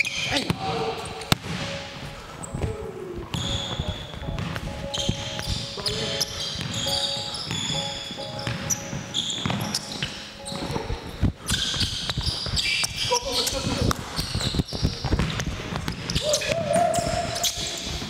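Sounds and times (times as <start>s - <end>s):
basketball bouncing: 0.0s - 2.0s, 2.6s - 10.8s, 13.9s - 18.0s
sneakers squeaking on floor: 0.0s - 18.0s.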